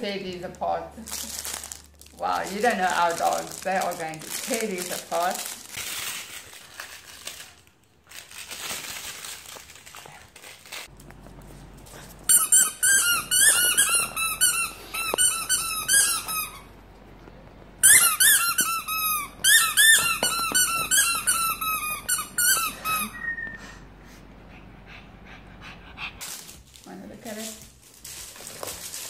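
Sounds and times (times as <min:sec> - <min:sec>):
squeaky dog toy squeaking: 0:12.3 - 0:16.8, 0:17.8 - 0:23.5.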